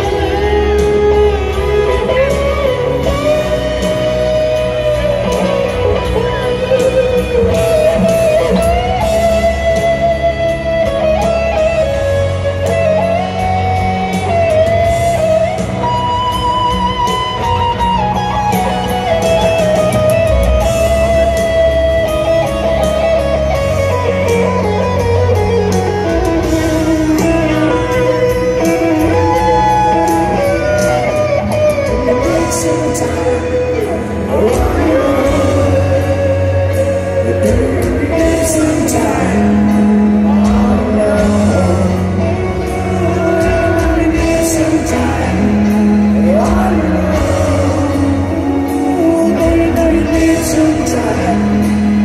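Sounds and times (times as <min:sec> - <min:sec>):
electric guitar solo: 0:00.0 - 0:52.0
live rock band: 0:00.0 - 0:52.0.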